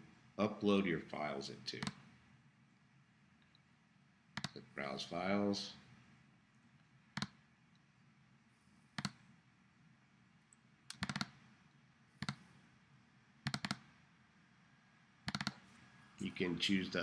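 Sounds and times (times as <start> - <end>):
computer mouse clicking: 1.8 - 2.0, 4.4 - 4.6, 6.7 - 7.9, 9.0 - 9.3, 10.5 - 12.6, 13.4 - 14.0, 15.2 - 15.6.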